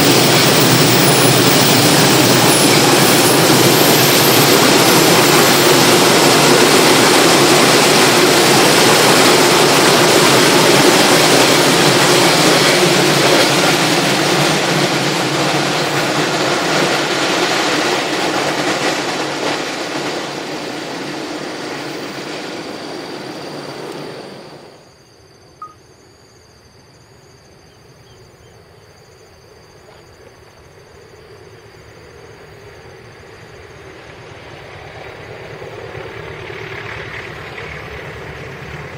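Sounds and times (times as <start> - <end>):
freight train rumbling past: 0.0 - 25.0, 30.7 - 38.9
distant train approaching: 0.0 - 38.9.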